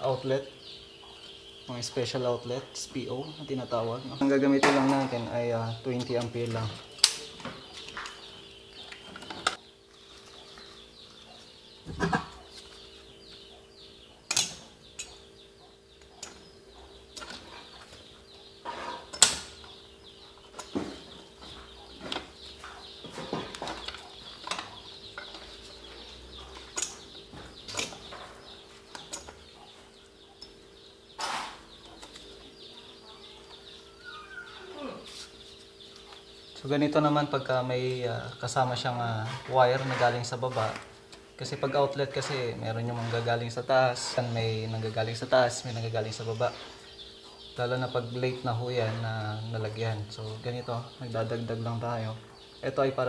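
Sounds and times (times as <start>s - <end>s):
circuit breakers clicking into panel: 5.9s - 9.6s, 14.3s - 15.2s, 16.0s - 16.5s, 19.1s - 19.8s, 26.6s - 29.5s.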